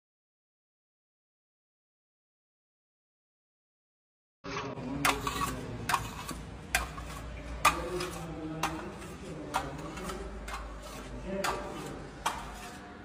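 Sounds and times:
trowel scraping plaster wall: 0:04.5 - 0:13.0.

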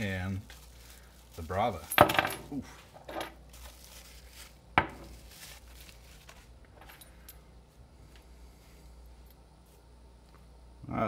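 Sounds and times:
plastic wrap rustling: 0:00.0 - 0:06.8.

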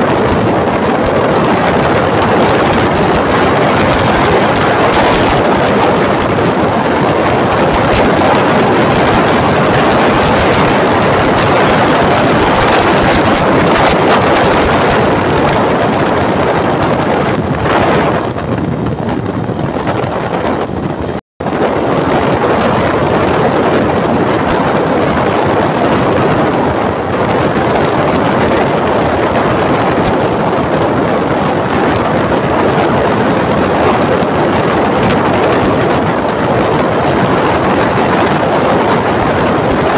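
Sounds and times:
motorcycle engine: 0:00.0 - 0:39.9
road noise: 0:00.0 - 0:39.9
wind rushing over microphone: 0:00.0 - 0:39.9.

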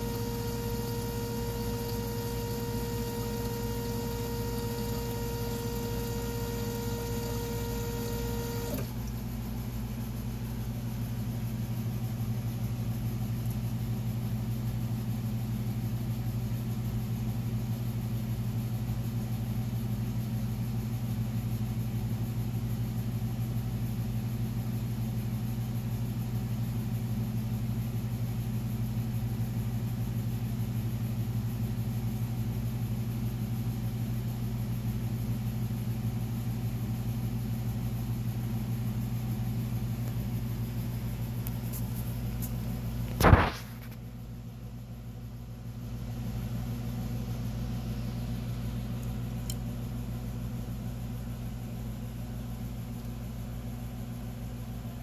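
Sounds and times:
test bench low hum: 0:00.0 - 0:13.8, 0:37.7 - 0:55.0
high whine: 0:43.2 - 0:43.9.

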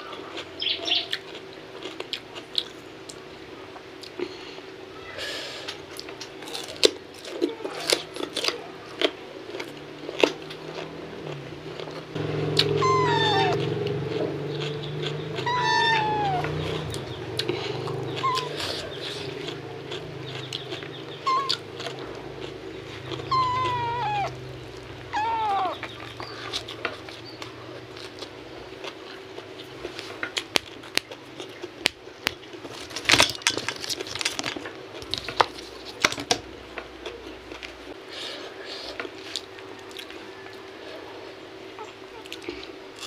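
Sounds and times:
cat meowing: 0:12.6 - 0:13.8, 0:15.3 - 0:17.0, 0:18.1 - 0:18.7, 0:21.2 - 0:21.6, 0:23.2 - 0:25.9.

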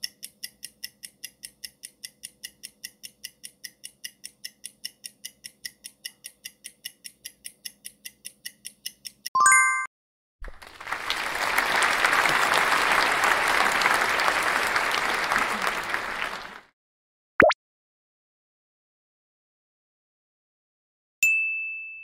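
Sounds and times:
fast clock ticking: 0:00.0 - 0:09.3.

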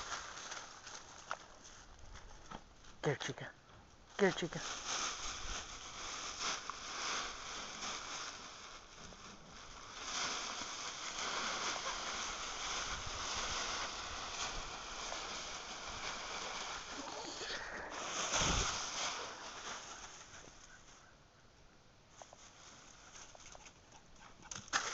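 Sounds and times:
dry leaves crunching and rustling: 0:00.0 - 0:03.0, 0:04.2 - 0:21.1.

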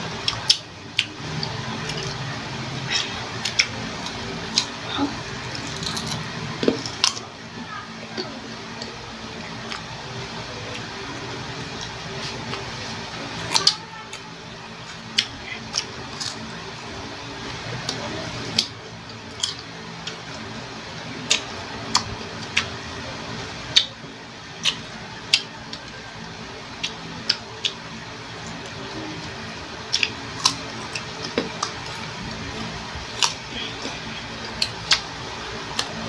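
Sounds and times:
crunchy chewing of mango slices: 0:00.2 - 0:04.8, 0:05.4 - 0:07.2, 0:24.6 - 0:25.9, 0:29.8 - 0:36.0.

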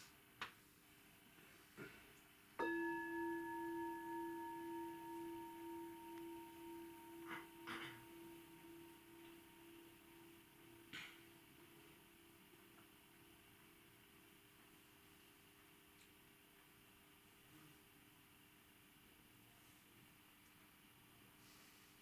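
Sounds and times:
meditation bell ringing: 0:02.6 - 0:12.6.

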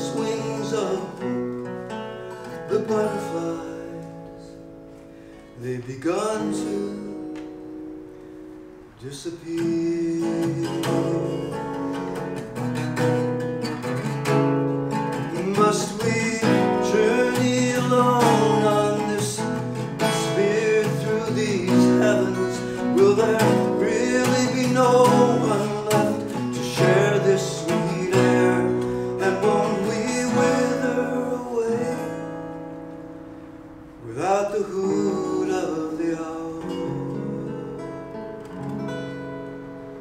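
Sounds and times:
man singing: 0:00.0 - 0:04.6, 0:05.6 - 0:07.7, 0:09.0 - 0:12.3, 0:15.1 - 0:32.6, 0:34.0 - 0:38.1
acoustic guitar: 0:00.0 - 0:40.0.

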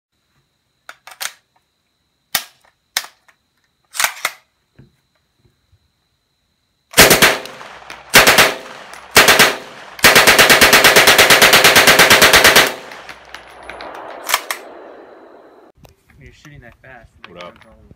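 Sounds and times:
submachine gun automatic fire: 0:07.0 - 0:14.8
gun metallic clicks: 0:12.9 - 0:14.8.

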